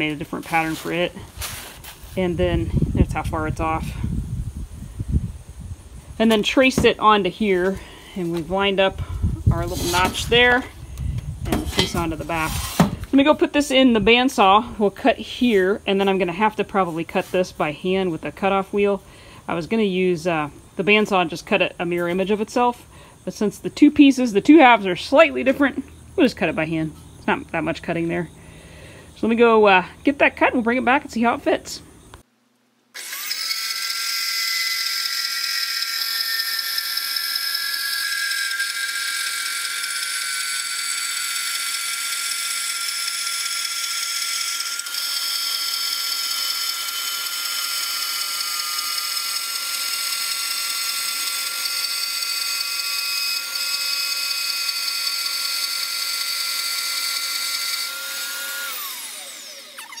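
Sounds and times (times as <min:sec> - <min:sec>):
bandsaw cutting steel: 0:09.5 - 0:10.7, 0:11.5 - 0:12.9, 0:33.0 - 1:00.0.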